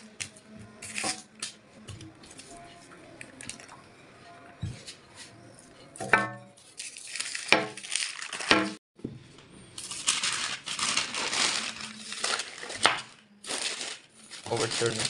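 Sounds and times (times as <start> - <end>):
parchment paper rustling: 0.8 - 3.7, 6.6 - 8.8, 9.8 - 15.0.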